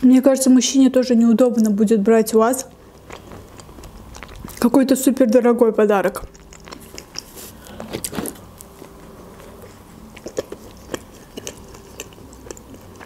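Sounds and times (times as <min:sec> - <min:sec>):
close chewing: 0:02.6 - 0:13.0
wet mouth clicks: 0:02.8 - 0:04.7, 0:06.2 - 0:08.2, 0:09.5 - 0:13.0.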